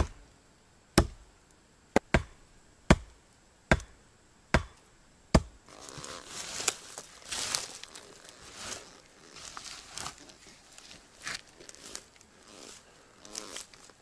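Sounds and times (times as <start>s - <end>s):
axe striking wooden poles: 0.0s - 0.2s, 1.0s - 1.2s, 1.9s - 5.6s
hand scraping through soil and bark: 5.7s - 14.0s.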